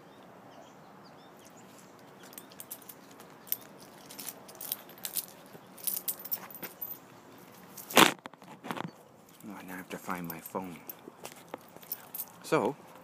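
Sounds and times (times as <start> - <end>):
metal harness buckles clinking: 1.4 - 8.0, 9.3 - 13.0.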